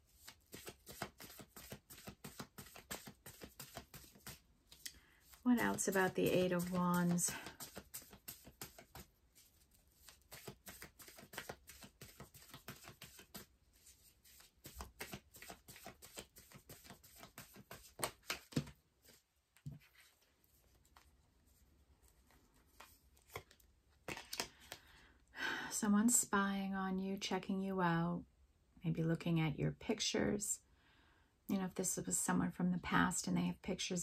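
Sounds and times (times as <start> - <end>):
cards being shuffled: 0.0 - 24.9.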